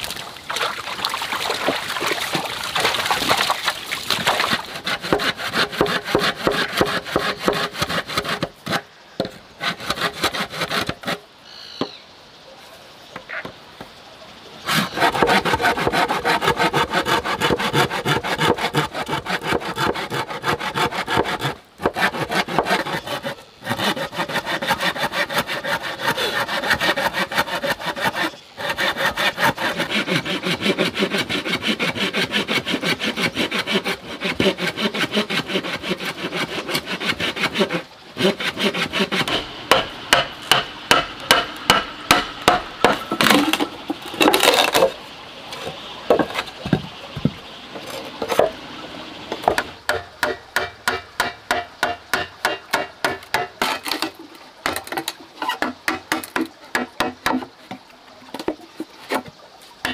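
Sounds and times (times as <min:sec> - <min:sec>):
hand saw cutting bamboo: 0:04.1 - 0:08.9, 0:09.6 - 0:11.2, 0:14.6 - 0:45.0, 0:49.4 - 0:57.5, 0:59.1 - 0:59.9.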